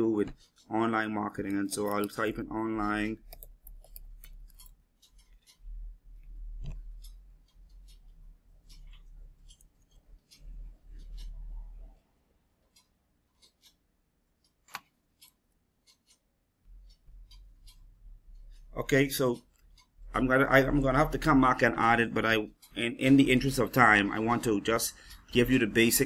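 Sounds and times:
keyboard and mouse clicks: 1.3s - 12.0s, 12.6s - 18.6s.

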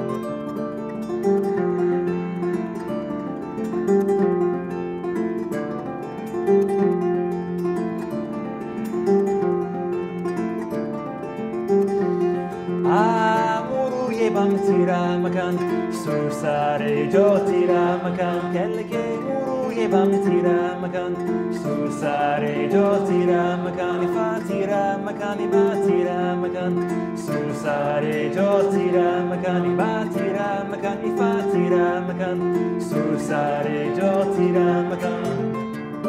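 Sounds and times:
plucked harp pattern: 0.0s - 36.0s
man singing: 12.4s - 35.7s.

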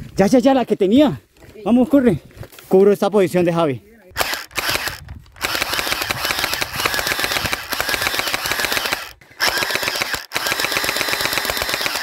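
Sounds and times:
gel blaster firing full-auto: 4.2s - 12.0s.

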